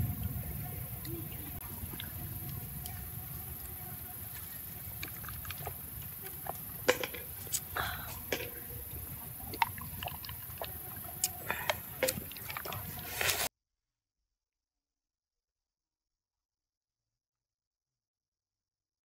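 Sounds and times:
low background noise: 0.0 - 13.5
water sloshing in tube: 1.5 - 13.5
man gulping water: 1.6 - 13.5.

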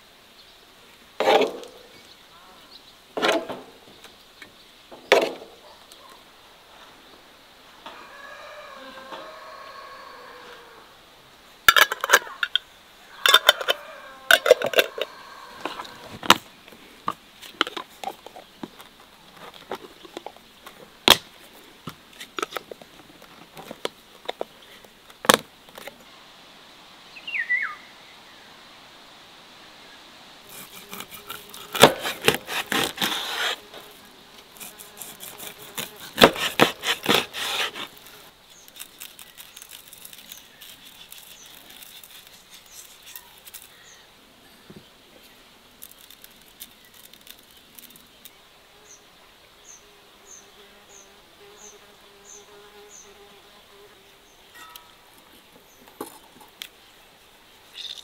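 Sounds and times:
metal lids clinking on glass jars: 13.2 - 15.1.

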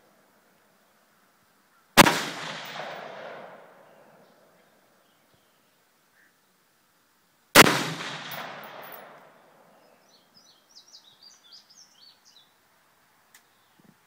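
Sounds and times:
birds chirping: 0.0 - 6.6, 8.3 - 14.0
rifle shot echoing: 2.0 - 4.2, 7.6 - 9.6.

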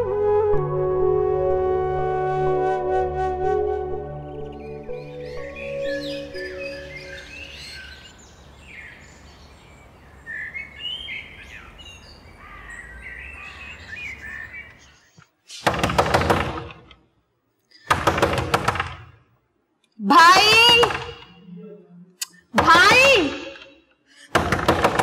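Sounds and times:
birds chirping: 4.0 - 15.6
knocking on wooden door: 15.7 - 16.8, 17.9 - 19.1, 20.3 - 21.3, 22.6 - 23.3, 24.4 - 25.0.

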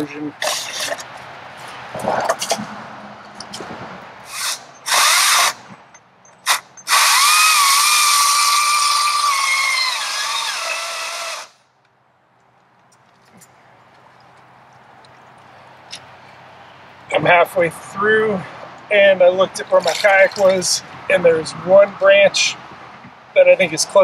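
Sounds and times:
electric chainsaw cutting log: 4.3 - 5.6, 6.5 - 11.6.

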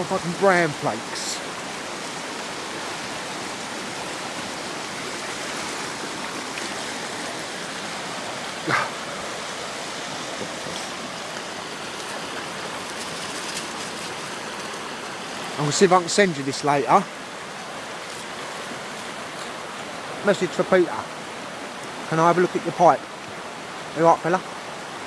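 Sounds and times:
running water rushing: 0.0 - 25.0
short bark-like call: 8.6 - 9.0.

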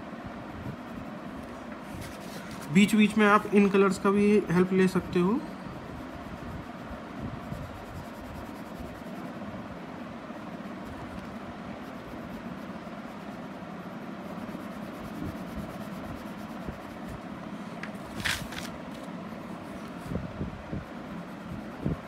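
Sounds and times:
background hum: 0.0 - 22.0
pencil scratching on paper: 6.0 - 9.4, 10.4 - 17.3.

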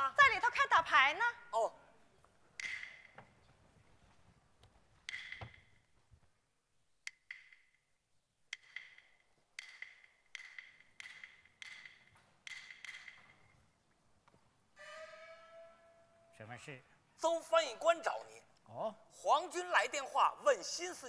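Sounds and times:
wooden clacks: 2.6 - 3.7, 4.6 - 5.8, 8.6 - 13.6.

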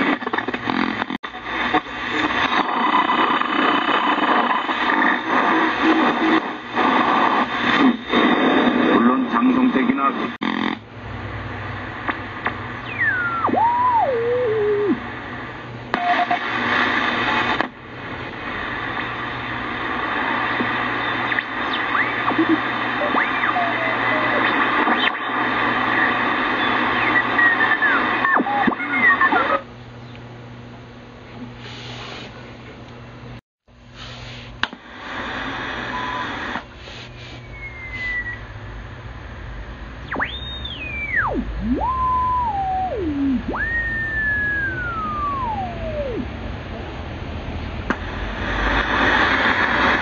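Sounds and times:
radio static and hiss: 0.0 - 29.9, 31.0 - 32.7, 33.3 - 47.0, 47.6 - 50.0
radio whistling tones gliding: 1.4 - 10.4, 12.8 - 15.0, 18.8 - 29.6, 35.1 - 38.7, 40.0 - 46.4.

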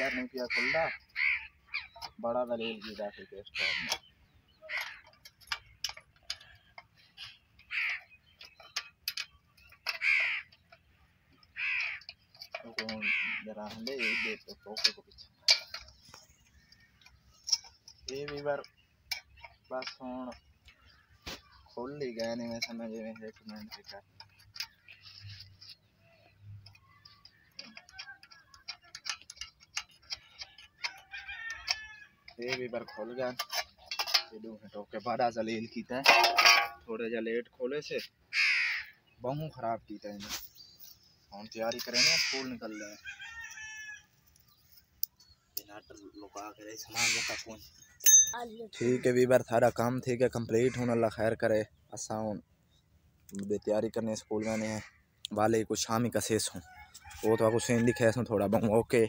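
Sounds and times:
crows cawing: 0.0 - 2.1, 3.5 - 5.6, 7.2 - 8.2, 9.8 - 10.8, 11.4 - 14.9, 30.1 - 32.2, 38.3 - 39.0, 41.8 - 44.1, 46.8 - 47.6, 48.8 - 49.3, 50.6 - 51.0, 54.3 - 55.2.

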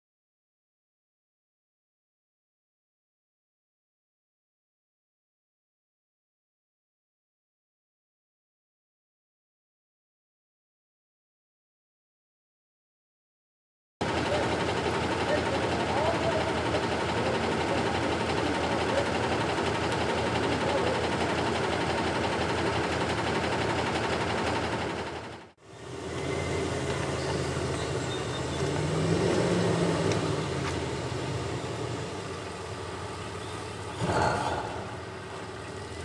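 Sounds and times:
truck driving off: 14.0 - 36.0
truck engine running: 14.0 - 36.0.

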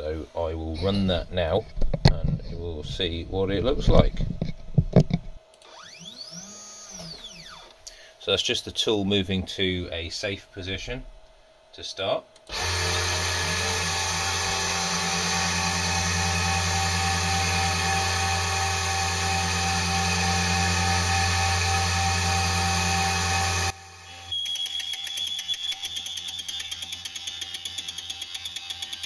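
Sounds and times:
spindle motor running: 4.9 - 7.7, 12.4 - 29.0
stepper motors whining: 5.6 - 7.7, 12.4 - 29.0.

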